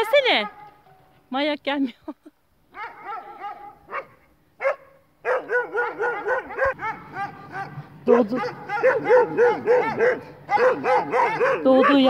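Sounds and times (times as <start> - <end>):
puppy whining and yelping: 5.3 - 12.0.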